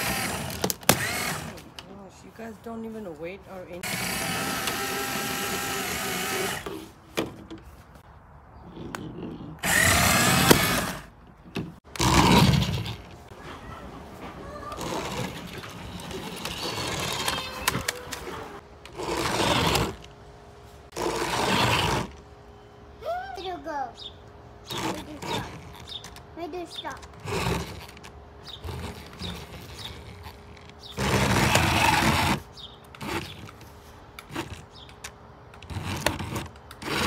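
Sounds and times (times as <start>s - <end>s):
toy car electric motors whirring: 0.0s - 1.7s, 3.8s - 6.9s, 9.6s - 11.1s, 11.9s - 13.2s, 14.4s - 20.1s, 20.9s - 22.2s, 24.6s - 37.0s
voices: 13.3s - 15.4s.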